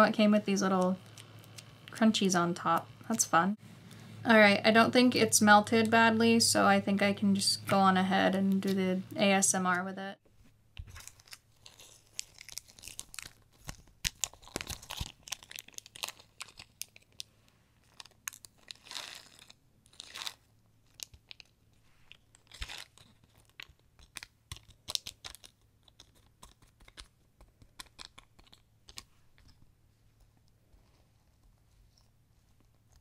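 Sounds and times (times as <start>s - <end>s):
crunchy slime crackling: 10.9s - 21.6s.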